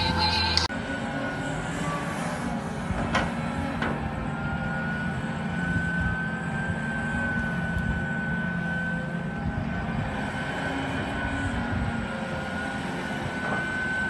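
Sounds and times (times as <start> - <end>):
steady high whine: 0.0 - 1.0
excavator diesel engine rumble: 0.0 - 14.0.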